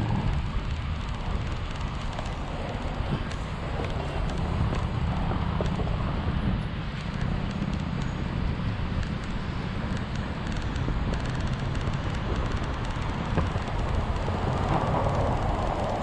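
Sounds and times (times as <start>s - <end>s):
wind buffeting microphone: 0.0s - 16.0s
scooter wheels rolling over paving: 0.1s - 6.2s, 9.9s - 16.0s.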